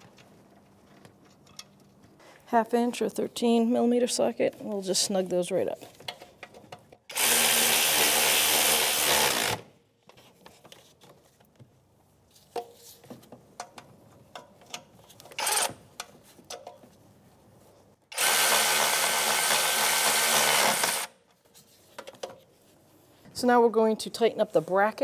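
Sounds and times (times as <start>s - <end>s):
power ratchet running: 7.1s - 9.7s, 18.1s - 21.1s.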